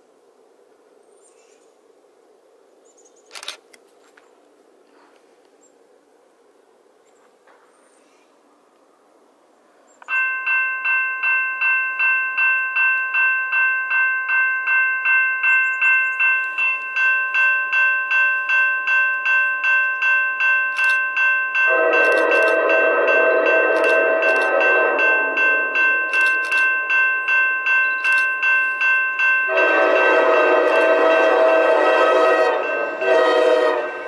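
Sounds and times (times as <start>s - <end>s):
railroad crossing bell ringing: 10.0s - 34.0s
train horn: 21.7s - 26.0s, 29.5s - 34.0s.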